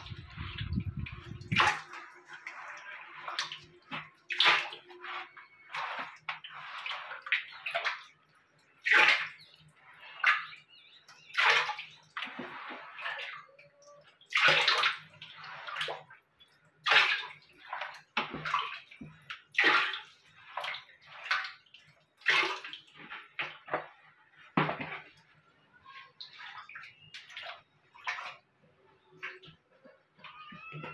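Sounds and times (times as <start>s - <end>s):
hands swishing shallow water: 0.0s - 25.3s.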